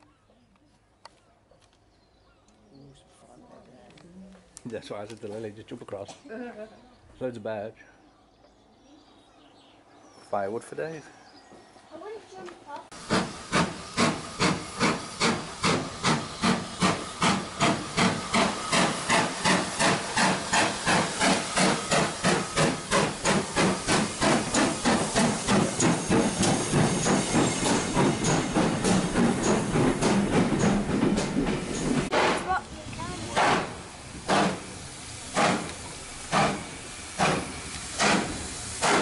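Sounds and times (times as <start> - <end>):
steam hissing: 12.9 - 39.0
steam locomotive chuffing: 12.9 - 39.0.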